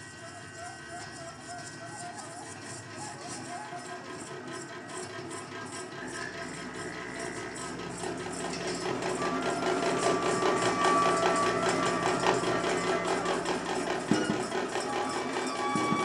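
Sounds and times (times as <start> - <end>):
fast drum kit clatter: 7.4 - 16.0
held bass clarinet tones: 8.2 - 16.0.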